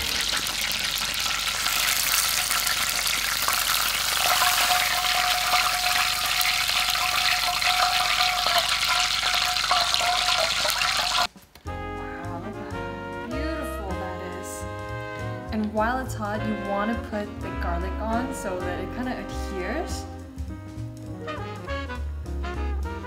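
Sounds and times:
chicken sizzling in hot oil: 0.0 - 11.3.

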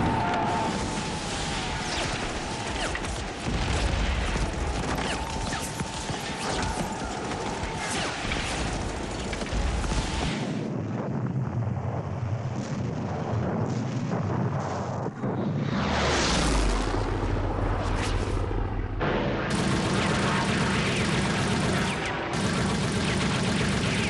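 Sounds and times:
rapid gunfire: 0.0 - 10.6, 19.5 - 24.0
explosions: 0.0 - 24.0
low rumble: 10.7 - 20.2.

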